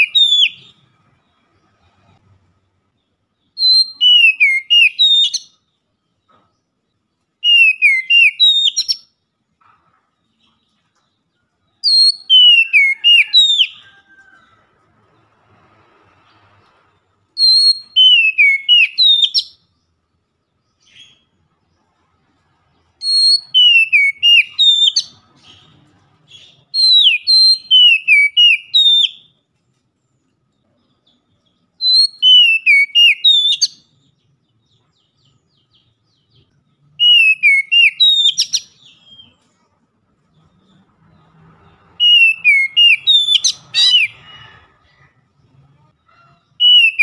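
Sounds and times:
bird singing whistled notes: 0.0s - 0.8s, 3.4s - 5.8s, 7.4s - 9.2s, 11.7s - 14.2s, 17.3s - 20.0s, 23.0s - 29.4s, 31.0s - 39.4s, 41.9s - 44.4s, 46.6s - 47.0s.

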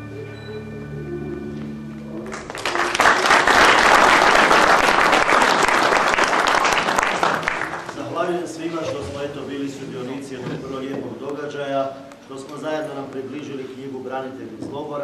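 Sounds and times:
music held notes: 0.0s - 3.8s
audience applause: 2.2s - 8.2s.

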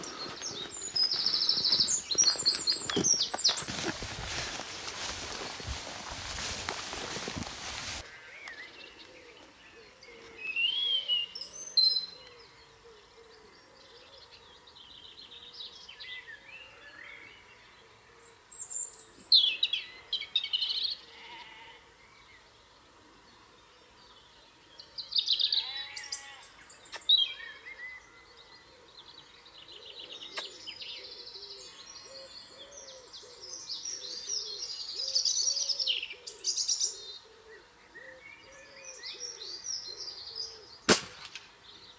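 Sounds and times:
songbirds singing: 0.0s - 41.9s.

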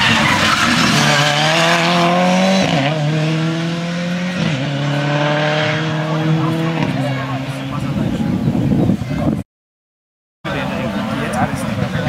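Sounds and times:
rally car engine accelerating hard: 0.0s - 8.0s.

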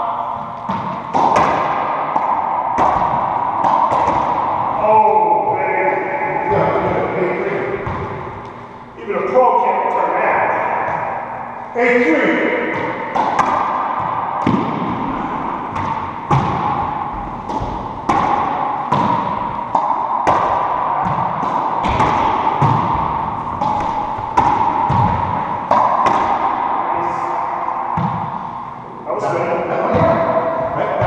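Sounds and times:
racquet hitting ball: 0.0s - 8.7s, 10.2s - 31.0s
ball smacking off walls: 0.7s - 4.7s, 12.7s - 26.6s.

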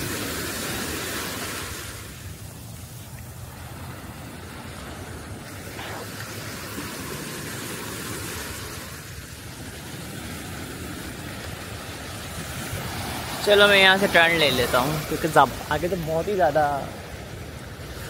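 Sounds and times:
wind rumble on microphone: 0.0s - 13.6s
sea surf rushing: 0.0s - 18.0s.

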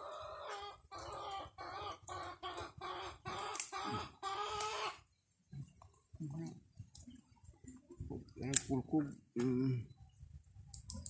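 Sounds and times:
chicken clucking: 0.0s - 5.8s.

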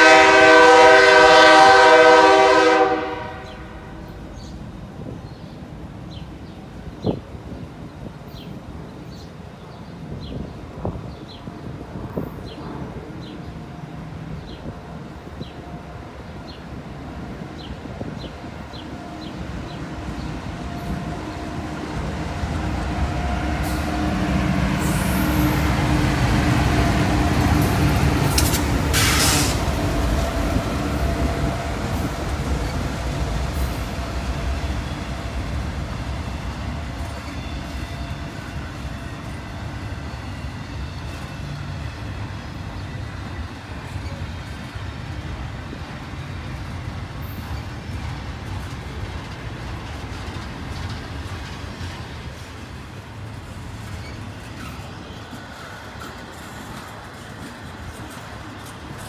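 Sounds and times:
diesel locomotive engine drone: 0.0s - 59.0s
freight cars rolling: 16.1s - 59.0s
brief air hiss: 28.3s - 29.6s.

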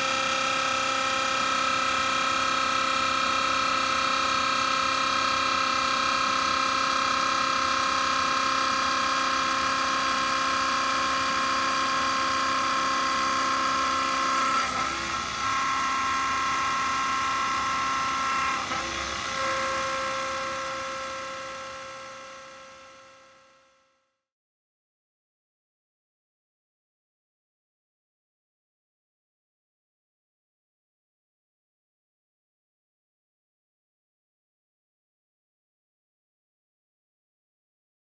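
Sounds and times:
milling machine cutting metal: 0.0s - 23.1s.

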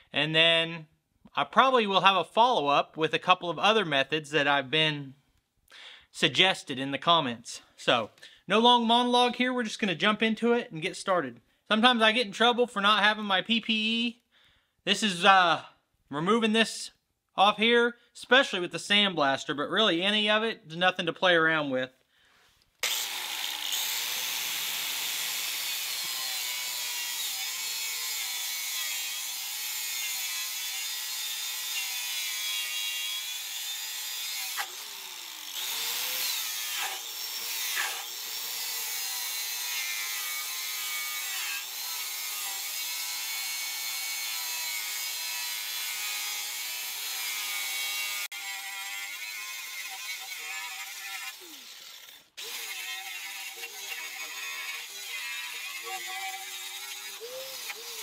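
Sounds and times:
angle grinder wire wheel on steel: 22.8s - 42.9s, 46.0s - 58.0s.

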